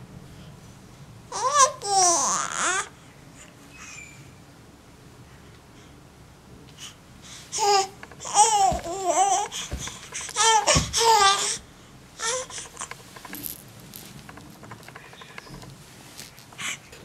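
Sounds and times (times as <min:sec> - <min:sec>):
baby babbling: 0:07.6 - 0:11.6, 0:12.2 - 0:12.9.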